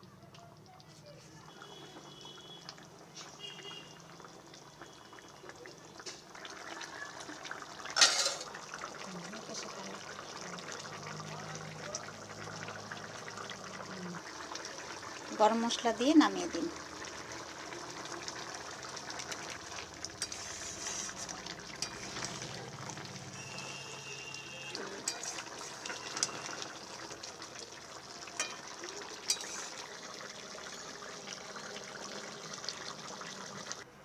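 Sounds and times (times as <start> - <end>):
curry simmering: 0.0 - 34.0
spatula stirring: 20.1 - 23.6, 24.8 - 26.8, 28.4 - 29.9
spatula clinking against pan: 28.4 - 28.7, 29.3 - 29.6.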